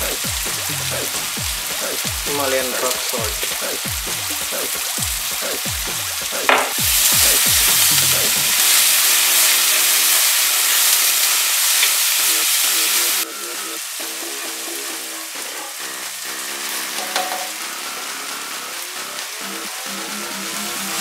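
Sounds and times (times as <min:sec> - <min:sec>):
background music: 0:00.0 - 0:09.7, 0:12.3 - 0:21.0
vegetables sizzling in oil: 0:00.0 - 0:21.0.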